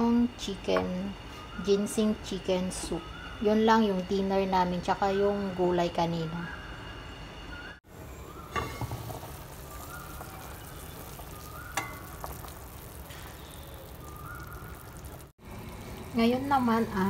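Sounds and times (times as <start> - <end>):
soup bubbling at a boil: 7.9 - 16.3.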